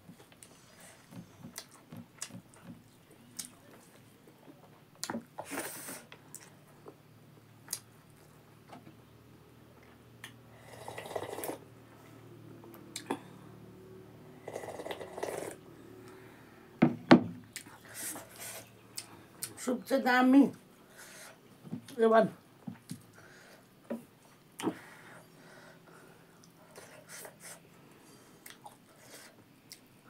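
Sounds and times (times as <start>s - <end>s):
noisy slurps: 10.7s - 11.7s, 14.5s - 15.6s.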